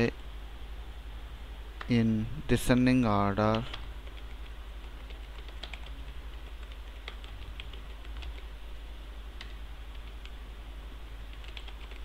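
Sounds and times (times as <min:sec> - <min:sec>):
steady low hum: 0:00.0 - 0:12.0
keyboard keystrokes: 0:03.5 - 0:08.5.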